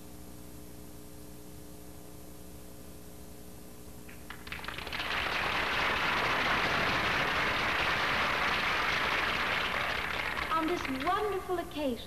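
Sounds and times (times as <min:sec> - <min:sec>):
old film soundtrack hum and hiss: 0:00.0 - 0:12.0
audience applause: 0:04.1 - 0:11.7.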